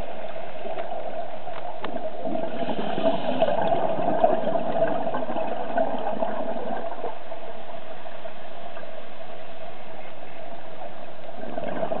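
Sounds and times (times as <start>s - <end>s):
regulator bubbles burbling: 0.0s - 7.4s, 10.8s - 12.0s
underwater hiss with crackling: 0.0s - 10.1s.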